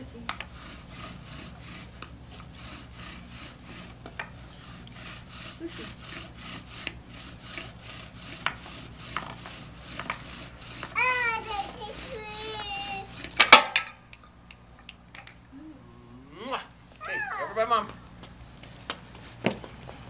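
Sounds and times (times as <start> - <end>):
bow drill spindle grinding: 0.0 - 13.6.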